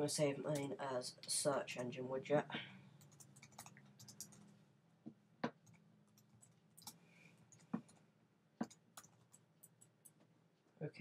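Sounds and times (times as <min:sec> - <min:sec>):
keyboard typing clicks: 0:03.0 - 0:04.5, 0:08.6 - 0:10.2.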